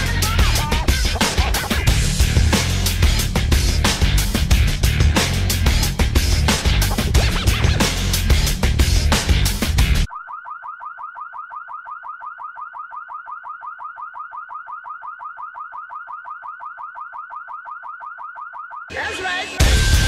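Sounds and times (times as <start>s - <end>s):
car alarm chirping: 10.1s - 19.5s.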